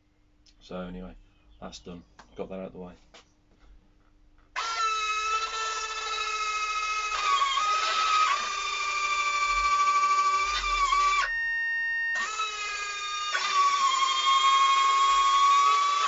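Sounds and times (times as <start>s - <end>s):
electric landing gear whining: 4.6s - 16.0s.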